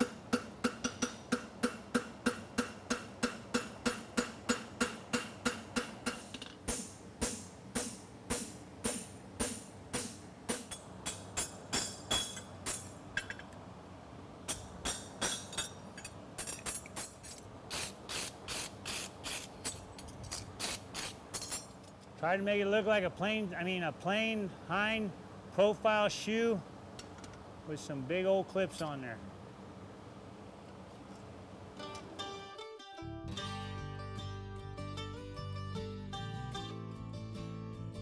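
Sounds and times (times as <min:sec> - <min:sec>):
hammer striking horseshoe on anvil: 0:00.0 - 0:13.4, 0:14.5 - 0:17.1.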